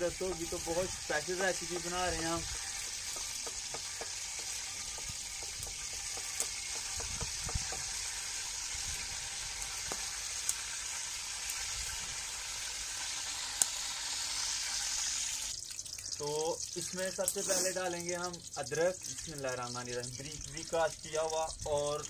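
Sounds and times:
spatula stirring in pan: 0.0s - 8.4s, 16.0s - 21.0s
ghee sizzling with pops: 0.0s - 22.0s.

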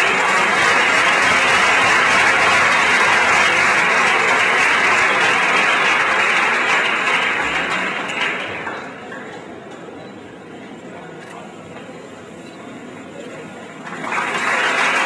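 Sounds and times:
audience applauding: 0.0s - 9.4s, 13.8s - 15.0s.

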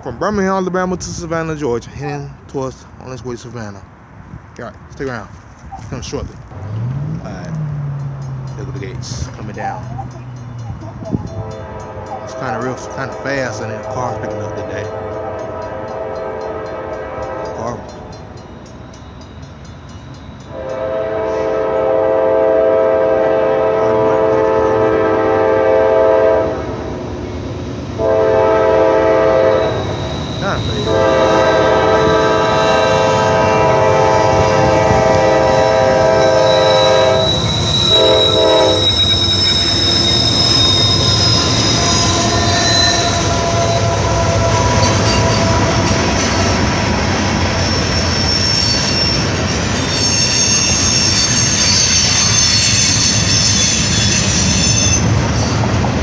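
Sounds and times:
locomotives rumbling: 0.0s - 19.0s, 26.6s - 49.8s
locomotive air horn blasts: 11.2s - 17.9s, 20.5s - 26.7s, 28.0s - 46.0s
faint wheel squeal: 29.7s - 31.0s, 36.1s - 45.7s, 47.7s - 55.1s.

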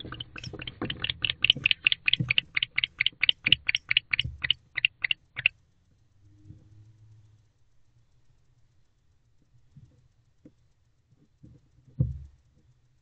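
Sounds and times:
owl chirping: 0.0s - 5.5s
faint low hum: 0.0s - 13.0s.

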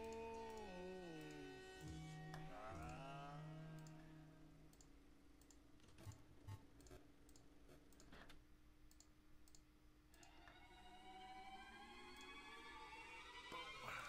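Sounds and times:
background music: 0.0s - 4.8s, 10.2s - 14.0s
low steady hum: 0.0s - 14.0s
faint computer mouse clicks: 6.8s - 10.3s.

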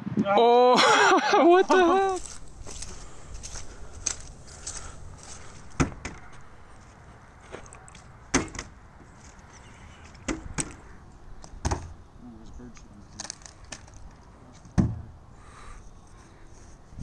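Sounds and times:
sharp knocks: 5.8s - 6.3s, 8.3s - 8.8s.

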